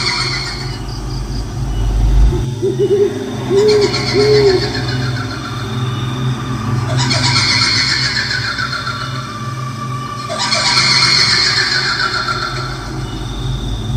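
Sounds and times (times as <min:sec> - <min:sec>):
low rumble: 0:00.0 - 0:07.0, 0:12.1 - 0:13.9
owl hooting: 0:00.0 - 0:13.9.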